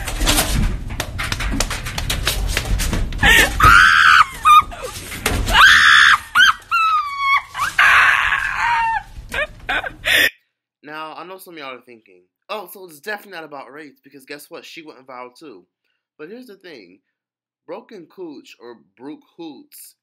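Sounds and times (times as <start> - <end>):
quick patter of knocks: 0.0 - 5.6
high-pitched screams: 3.3 - 4.6, 5.5 - 9.9.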